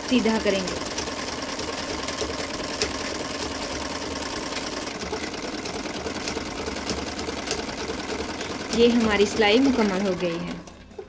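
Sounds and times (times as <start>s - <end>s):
sewing machine running: 0.0s - 11.0s.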